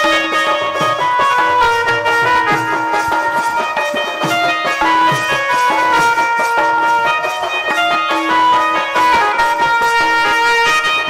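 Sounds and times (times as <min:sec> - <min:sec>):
barrel drum beaten in lively rhythm: 0:00.0 - 0:11.0
melody instrument holding notes: 0:00.0 - 0:11.0.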